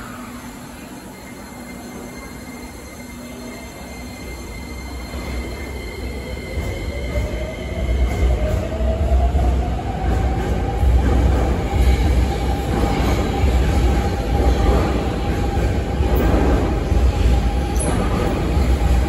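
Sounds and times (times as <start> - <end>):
electric train accelerating: 0.0 - 19.0
rumble of wheels on rail: 0.0 - 19.0.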